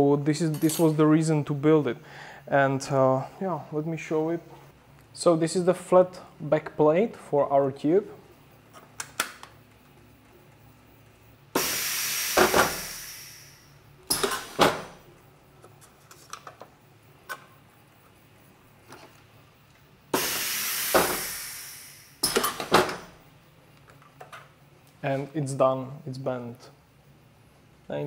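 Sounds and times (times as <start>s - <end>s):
loud pneumatic hiss: 11.5s - 15.0s, 20.1s - 23.2s.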